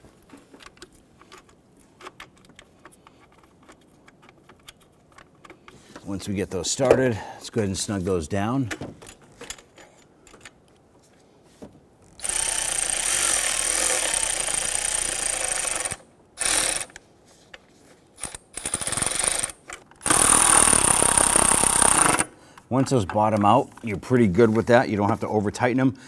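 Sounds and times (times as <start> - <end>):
cordless ratchet running: 12.2 - 17.0, 18.2 - 22.3
ratchet clicks: 12.2 - 17.0, 18.2 - 22.3.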